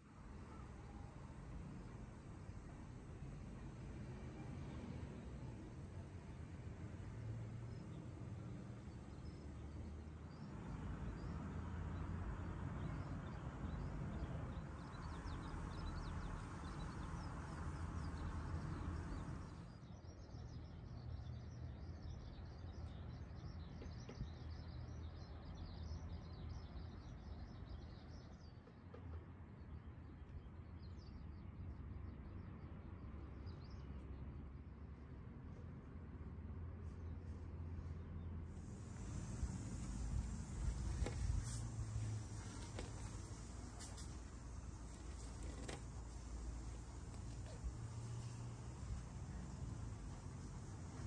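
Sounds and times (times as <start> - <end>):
low background rumble: 35.8 - 51.0
small birds chirping: 38.6 - 51.0.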